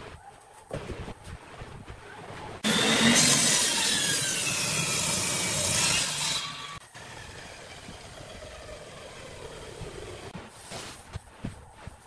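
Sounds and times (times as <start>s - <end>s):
table saw cutting wood: 2.6s - 10.3s.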